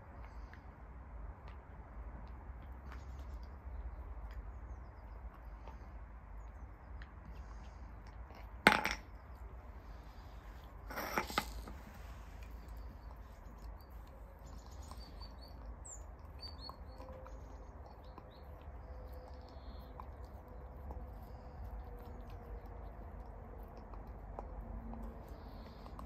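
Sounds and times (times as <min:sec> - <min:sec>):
dog gnawing bone: 0:10.7 - 0:26.0.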